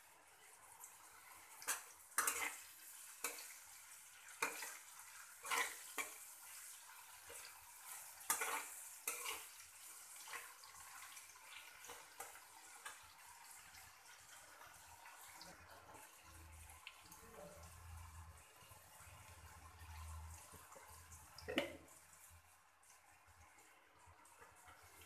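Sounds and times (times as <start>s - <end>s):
faint frying sizzle: 0.0s - 25.0s
metal spatula scraping a wok: 1.7s - 3.5s, 4.4s - 6.2s, 7.3s - 9.6s.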